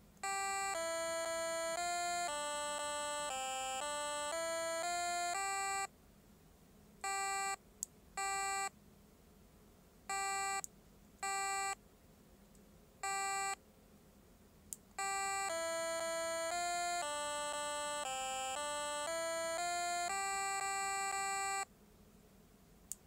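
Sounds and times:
short electronic beeps: 15.0s - 21.6s.

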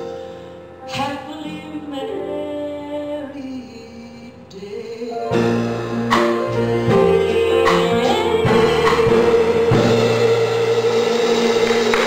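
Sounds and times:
woman singing into a microphone: 0.9s - 5.2s, 6.8s - 11.4s
instrumental accompaniment: 5.1s - 12.0s.

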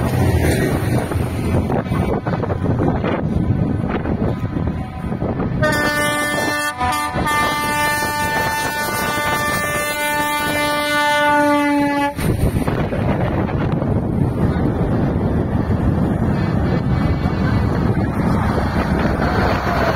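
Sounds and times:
rumble of vehicles: 0.0s - 19.9s
vehicle air horn blast: 5.6s - 12.2s.

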